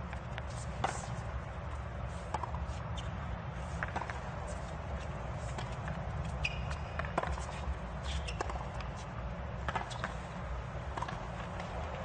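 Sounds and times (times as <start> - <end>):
tennis ball hits and bounces: 2.3 - 2.8, 3.7 - 12.0
shoe squeak: 2.7 - 3.3, 5.4 - 9.1, 9.8 - 10.4.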